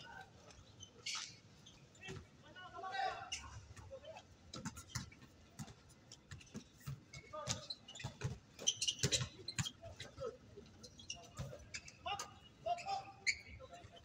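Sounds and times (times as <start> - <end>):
sneakers squeaking on court: 0.6 - 2.3, 4.6 - 14.0.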